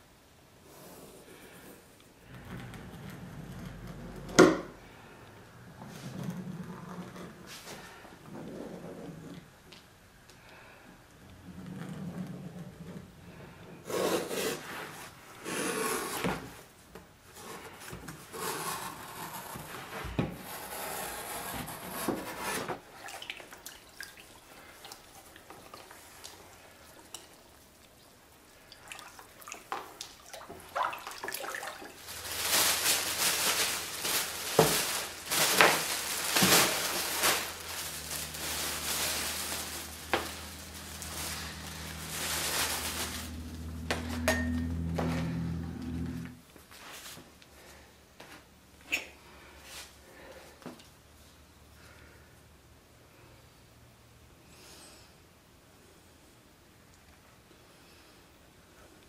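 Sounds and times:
water sloshing and splashing: 22.8s - 43.4s
hands rubbing paper and leather: 31.9s - 44.1s.

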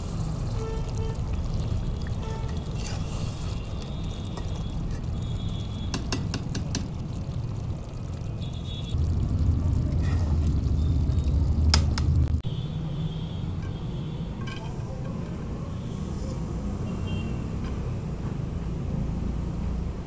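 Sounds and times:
steady low rumble: 8.9s - 12.4s.

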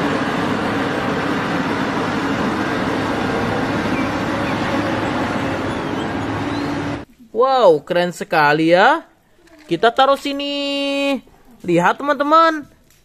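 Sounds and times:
diesel engine rumbling: 0.0s - 7.1s.

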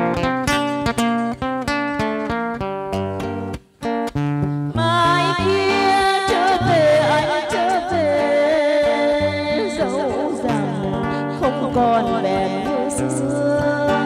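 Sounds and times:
acoustic guitar picking melody: 0.0s - 14.0s
woman singing with vibrato: 4.7s - 14.0s.

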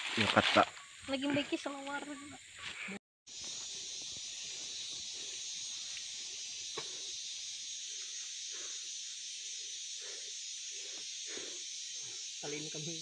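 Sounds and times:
forest insects droning: 0.0s - 13.0s.

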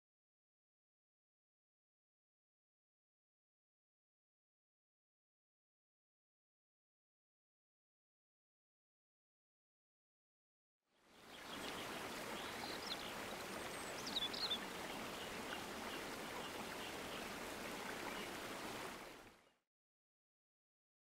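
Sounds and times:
creek running over gravel: 11.1s - 19.4s.

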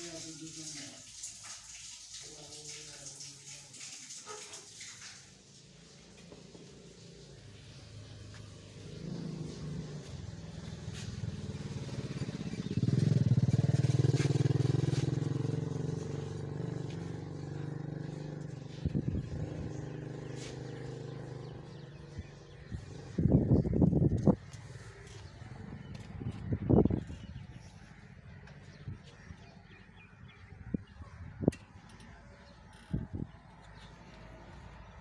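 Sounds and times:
vehicle engine passing: 5.5s - 28.4s.

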